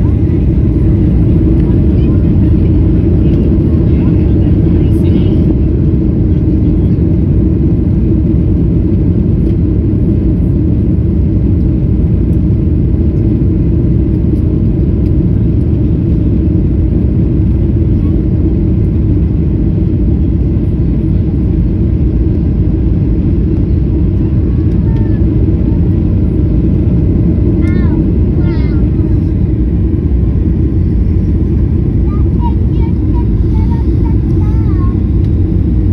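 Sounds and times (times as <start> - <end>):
airliner engines rumbling: 0.0 - 35.9.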